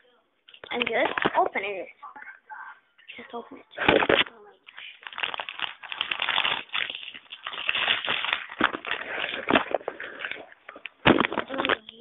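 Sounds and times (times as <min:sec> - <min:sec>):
snack wrapper crinkling: 0:04.0 - 0:12.0.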